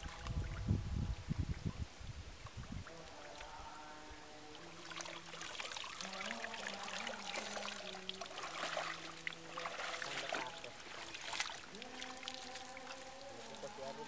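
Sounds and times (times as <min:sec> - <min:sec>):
water splashing and pouring: 0:04.6 - 0:14.0.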